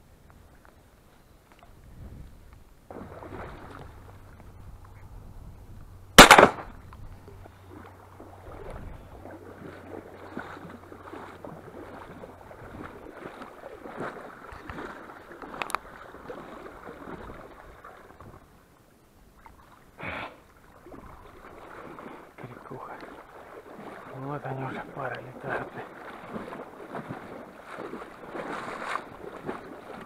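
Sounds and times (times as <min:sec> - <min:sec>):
splashing in shallow water: 0:01.4 - 0:05.3, 0:05.9 - 0:30.0
shotgun shot: 0:06.2 - 0:06.7.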